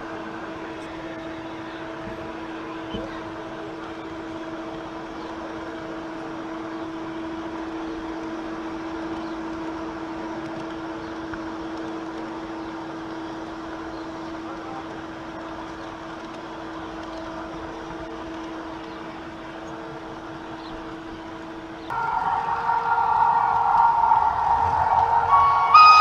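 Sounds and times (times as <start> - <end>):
wheels rolling on track: 0.0 - 26.0
loud music: 21.9 - 26.0.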